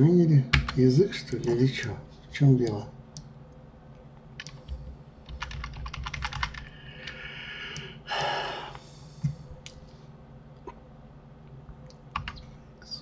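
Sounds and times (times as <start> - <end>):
typing on keyboard: 4.4 - 7.2, 12.1 - 12.4.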